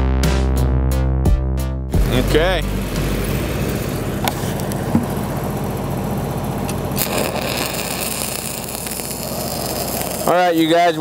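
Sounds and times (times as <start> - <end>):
welding arc crackling and hissing: 6.6 - 11.0.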